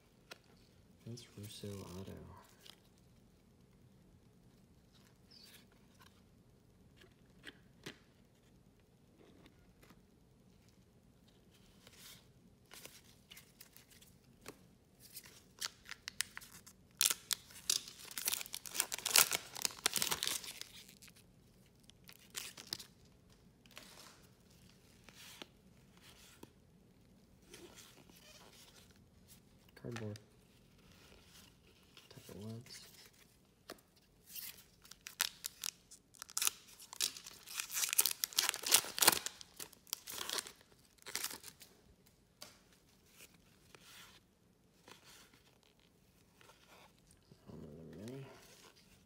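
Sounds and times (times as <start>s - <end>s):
foil wrapper tearing and crinkling: 15.6s - 21.1s, 34.9s - 41.6s.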